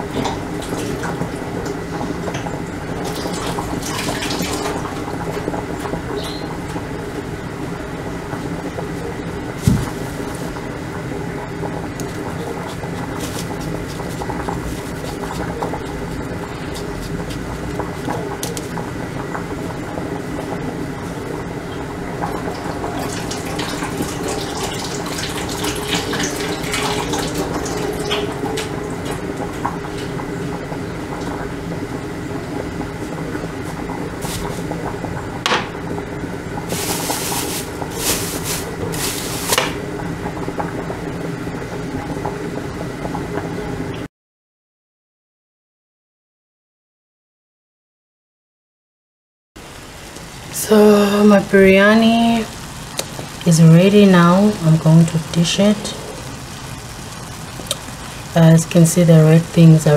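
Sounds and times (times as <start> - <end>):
plastic bag crinkling: 36.7 - 39.8.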